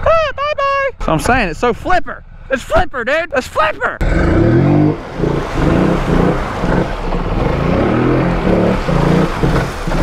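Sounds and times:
atv engine revving: 4.0 - 10.0
water and mud splashing: 4.0 - 10.0.

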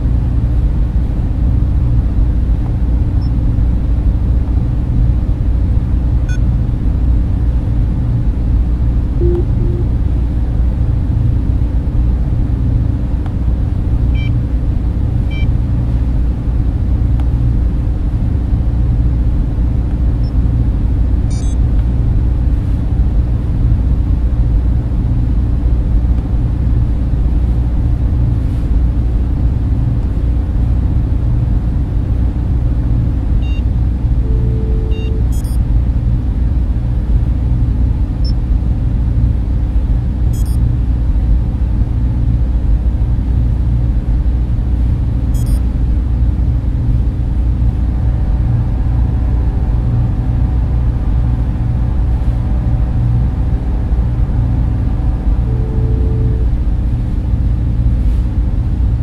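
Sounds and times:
deep machine hum and rumble: 0.0 - 59.0
faint electronic blips: 9.2 - 10.1, 33.4 - 35.6, 45.4 - 45.6, 55.1 - 56.6.

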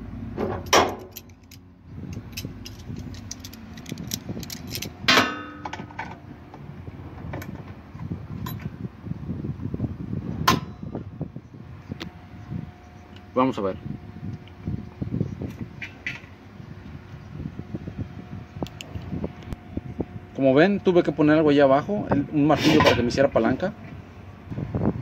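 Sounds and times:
sharp metallic clanks: 0.4 - 6.2
metal pliers clinking and scraping: 0.6 - 5.8.

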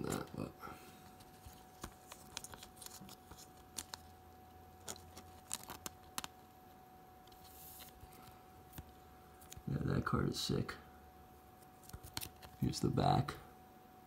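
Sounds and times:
plastic sleeve crinkling and clicking: 1.0 - 4.1, 4.8 - 6.4, 11.7 - 12.7.

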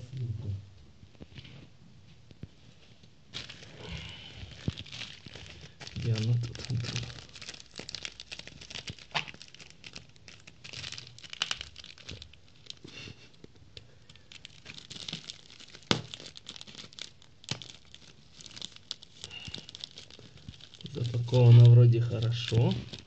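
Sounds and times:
plastic bag tearing: 3.3 - 12.9, 14.1 - 23.0
plastic bag crinkling: 3.3 - 23.0.

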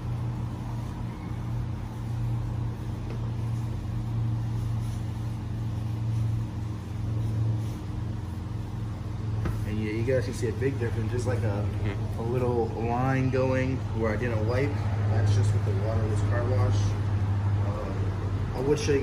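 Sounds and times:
cloth rubbing on car paint: 0.0 - 19.0
low droning hum: 0.0 - 19.0.

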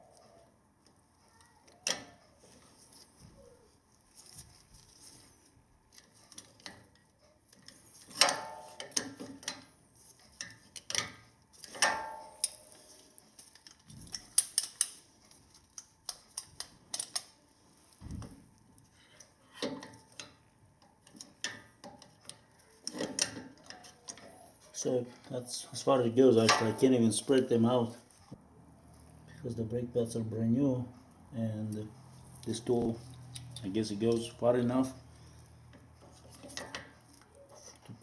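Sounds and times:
metal tool clinking and clanking: 26.4 - 27.0.

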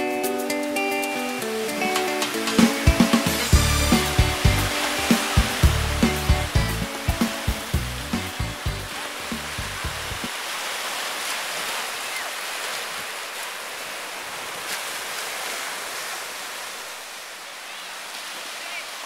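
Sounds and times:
music with a beat: 0.0 - 10.3
ocean surf: 0.0 - 19.0.

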